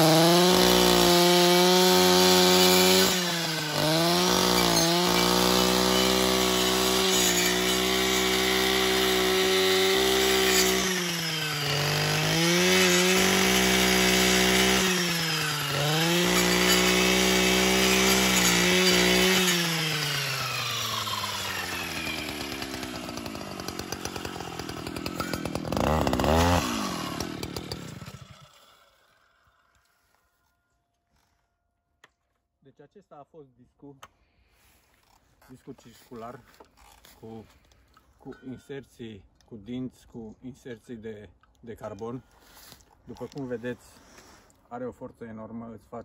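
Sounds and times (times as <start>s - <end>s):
brushcutter engine at full throttle: 0.0s - 29.2s.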